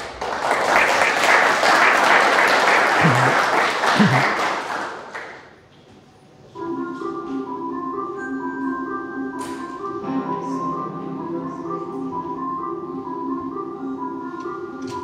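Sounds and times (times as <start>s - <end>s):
audience applauding: 0.0s - 5.6s
music: 6.5s - 15.0s.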